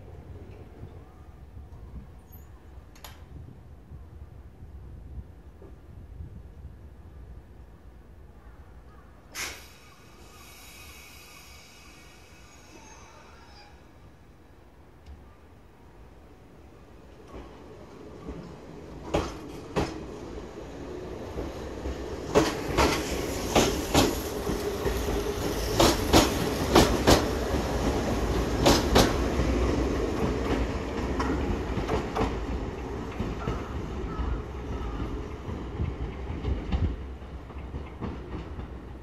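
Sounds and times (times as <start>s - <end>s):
train rumble: 9.4s - 39.0s
train wheels clacking on rail joints: 18.2s - 20.1s, 21.3s - 39.0s.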